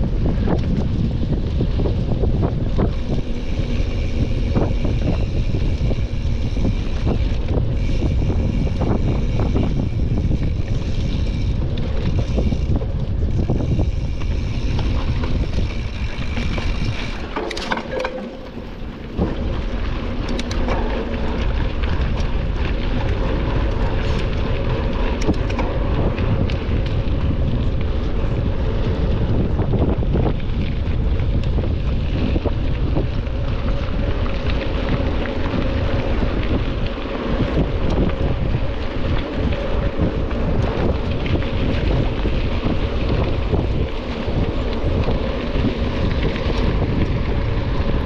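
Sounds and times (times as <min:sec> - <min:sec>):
bike low rumble: 0:00.0 - 0:48.0
wind buffeting microphone: 0:00.0 - 0:48.0
sharp clicks and knocks: 0:16.4 - 0:18.8.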